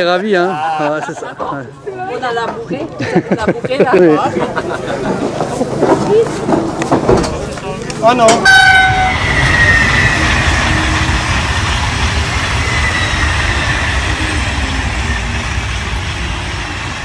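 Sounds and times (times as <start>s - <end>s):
high-speed train passing: 3.6s - 17.0s.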